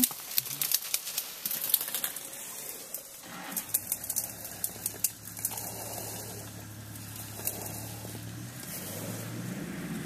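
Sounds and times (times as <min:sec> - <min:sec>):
crackles and clicks: 0:00.0 - 0:10.0
vehicle engine idling: 0:02.0 - 0:10.0.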